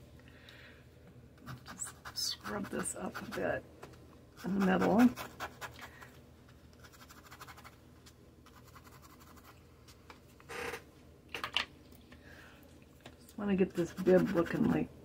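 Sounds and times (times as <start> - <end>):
brush scrubbing on paper: 13.7 - 14.8.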